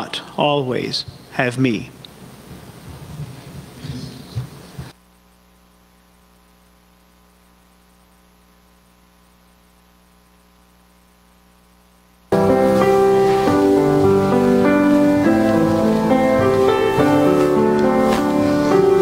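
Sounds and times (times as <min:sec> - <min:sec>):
electrical mains hum: 0:00.0 - 0:19.0
piano music: 0:12.3 - 0:19.0
rustling at microphone: 0:12.3 - 0:19.0.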